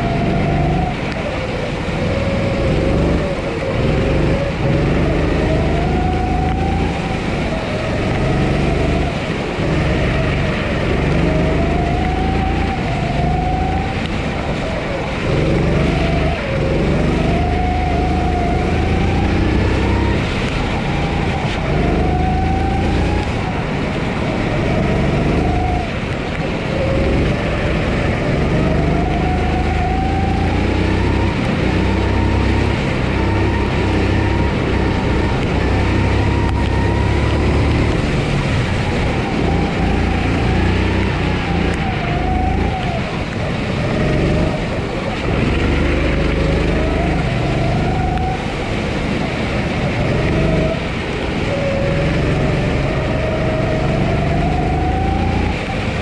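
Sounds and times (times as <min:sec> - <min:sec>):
kart engine revving: 0:00.0 - 0:56.0
steady rushing noise: 0:00.0 - 0:56.0.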